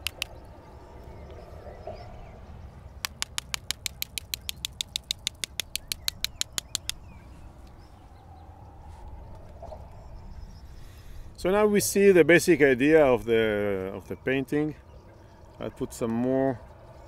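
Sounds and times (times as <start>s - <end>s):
rapid sharp dry clicks: 0.0s - 0.4s, 3.0s - 7.0s.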